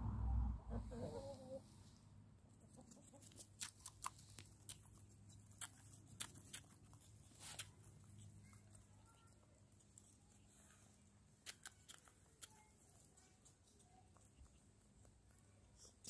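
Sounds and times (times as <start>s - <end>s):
hen clucking softly: 0.7s - 1.9s.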